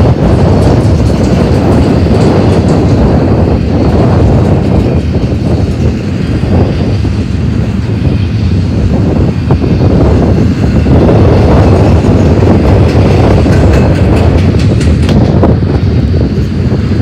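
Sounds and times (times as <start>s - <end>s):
train wheels clacking: 0.0s - 6.4s, 11.4s - 15.5s
train wheels rumbling on rails: 0.0s - 17.0s.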